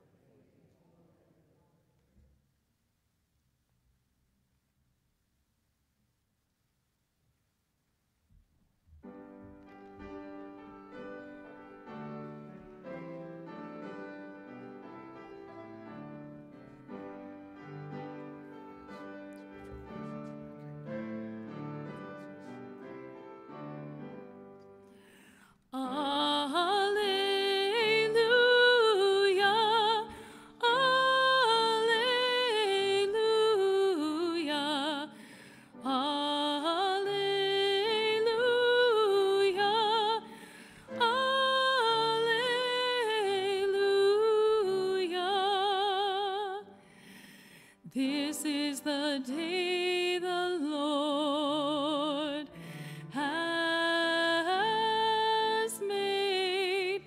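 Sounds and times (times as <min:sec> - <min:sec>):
keyboard accompaniment: 0:09.0 - 0:25.3.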